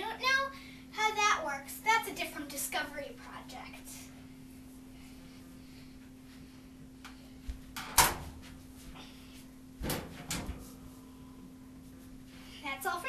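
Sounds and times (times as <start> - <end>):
dryer door clunks: 7.8 - 8.4, 9.8 - 10.6.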